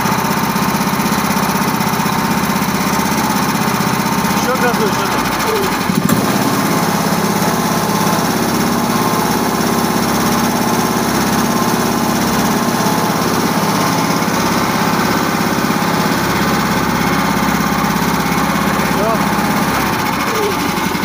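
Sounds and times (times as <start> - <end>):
vehicle engine running: 0.0 - 21.0.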